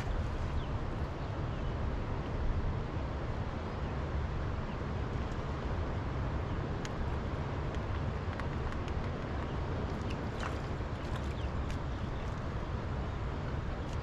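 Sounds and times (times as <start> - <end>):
low outdoor rumble: 0.0 - 14.0.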